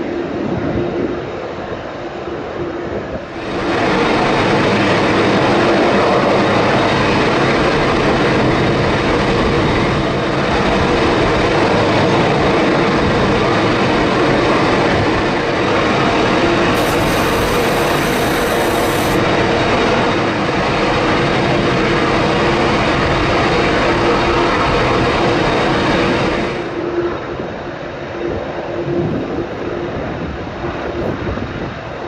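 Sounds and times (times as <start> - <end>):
jet engines roaring: 0.0 - 32.0
steady hum: 13.4 - 21.4.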